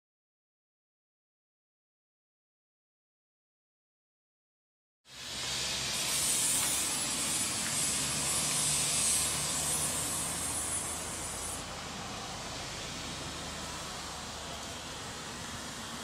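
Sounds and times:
even hiss: 5.1 - 16.0.

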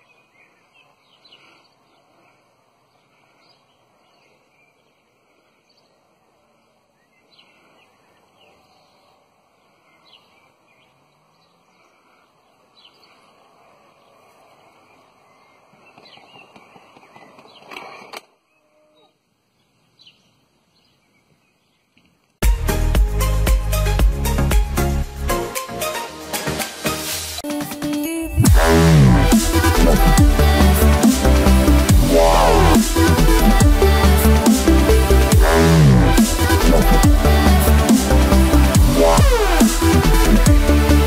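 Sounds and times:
birds chirping: 0.0 - 22.4, 28.2 - 41.0
loud electronic music: 22.4 - 41.0.

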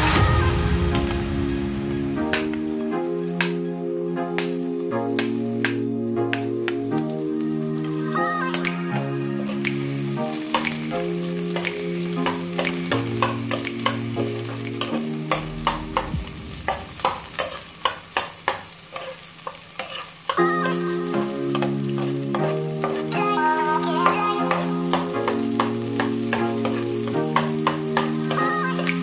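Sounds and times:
background music: 0.0 - 18.1, 20.3 - 29.0
faint sizzle: 0.0 - 29.0
metal spoon scraping pot: 18.9 - 20.1.

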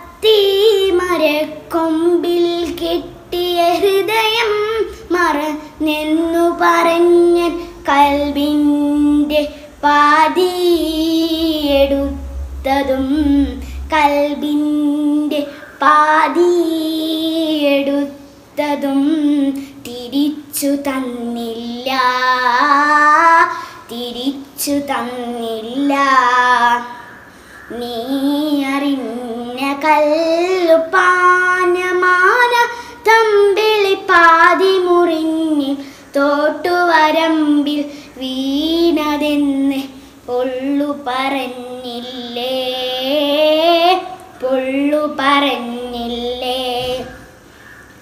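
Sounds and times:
girl singing solo: 0.0 - 27.1.

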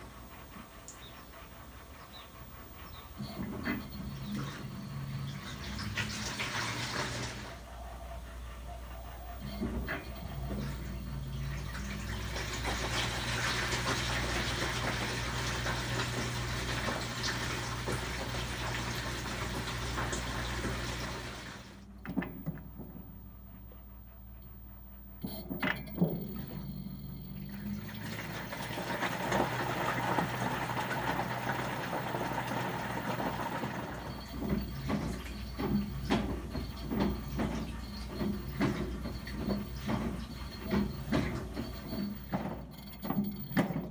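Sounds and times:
water churning in washer: 0.0 - 22.8, 25.7 - 43.9
washer motor hum: 0.0 - 43.9.

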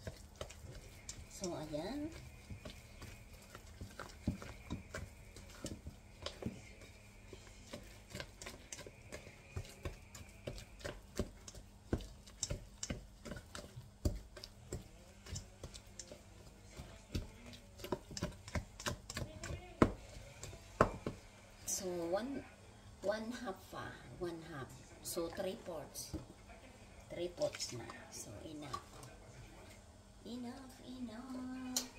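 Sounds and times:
utensil clinking in metal bowl: 0.0 - 21.1.

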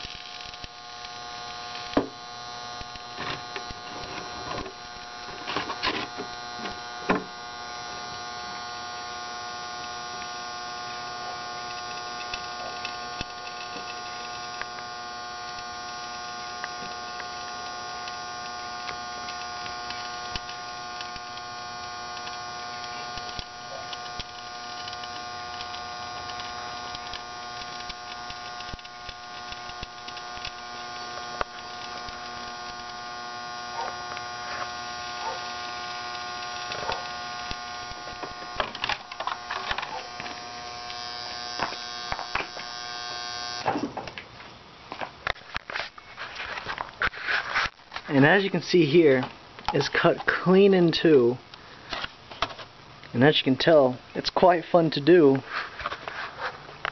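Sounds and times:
transformer humming: 0.0 - 43.8.

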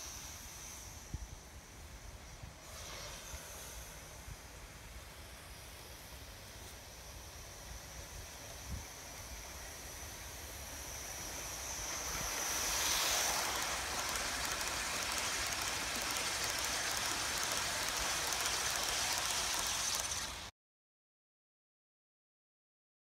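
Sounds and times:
steam hiss: 0.0 - 20.5
wheels rattling on rail: 2.6 - 20.5.

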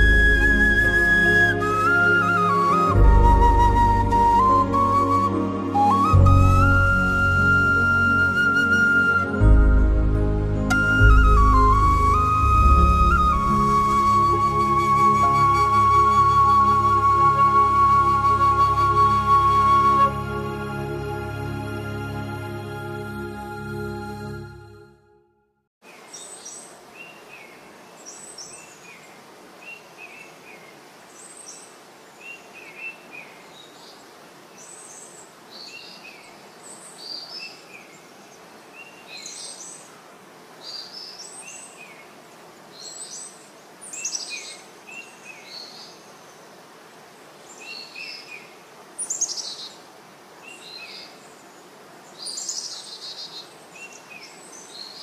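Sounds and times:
steady outdoor background hiss: 0.0 - 24.8, 25.8 - 55.0
wild birds chirping: 25.9 - 55.0.

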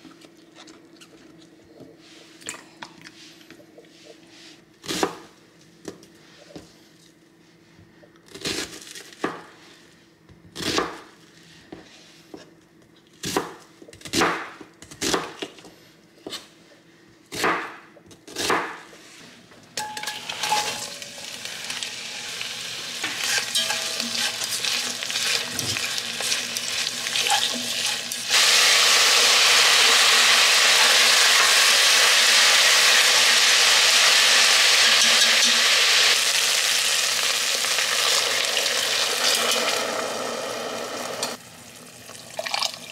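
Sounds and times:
onion sizzling in oil: 19.8 - 42.4
chopsticks stirring in pot: 23.0 - 28.4.

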